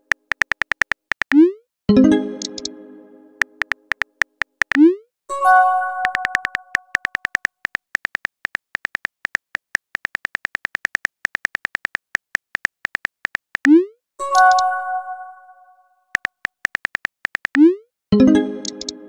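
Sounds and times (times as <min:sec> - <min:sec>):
smartphone keyboard taps: 0:00.1 - 0:01.4, 0:03.4 - 0:04.8, 0:06.0 - 0:13.7, 0:16.2 - 0:17.6.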